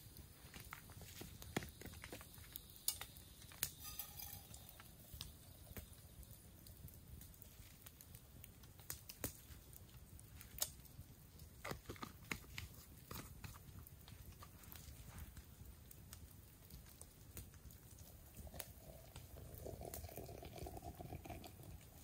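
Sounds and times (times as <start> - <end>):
sharp pops from fire: 0.0 - 20.0
campfire crackling: 0.0 - 22.0.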